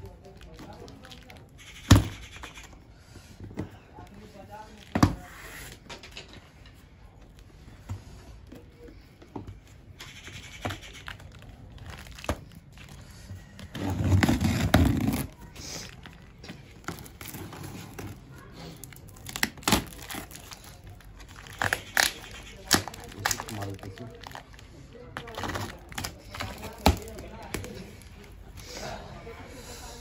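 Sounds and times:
crinkling: 0.0 - 2.8, 3.7 - 28.5
cardboard tearing: 13.6 - 16.0, 16.8 - 24.4.

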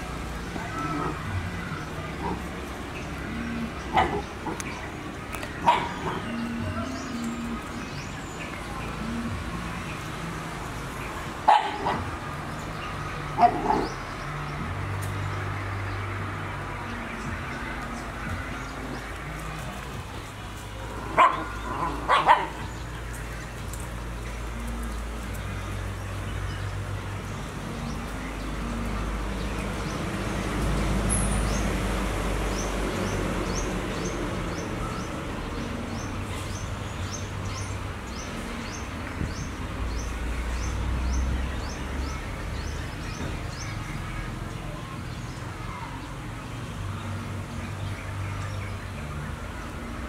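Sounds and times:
outdoor background noise: 0.0 - 50.0
puppy barking: 3.9 - 4.6, 5.6 - 6.2, 11.5 - 12.1, 21.1 - 22.6.

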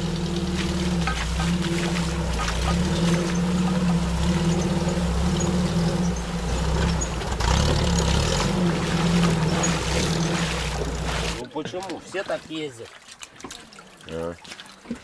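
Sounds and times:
engine humming: 0.0 - 11.4.

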